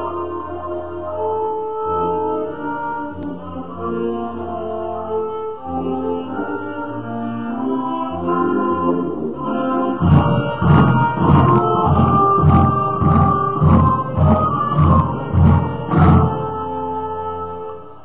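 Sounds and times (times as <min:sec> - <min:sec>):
instrumental anthem with strings: 0:00.0 - 0:18.0
crowd cheering: 0:10.0 - 0:16.6.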